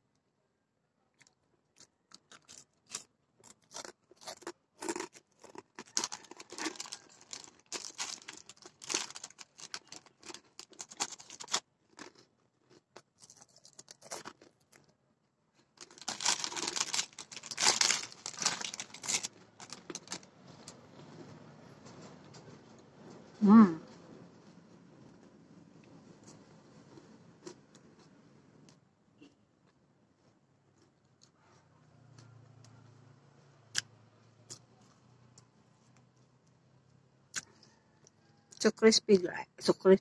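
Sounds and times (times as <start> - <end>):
plastic bag crinkling: 4.8 - 12.2, 13.2 - 14.8, 15.8 - 20.8.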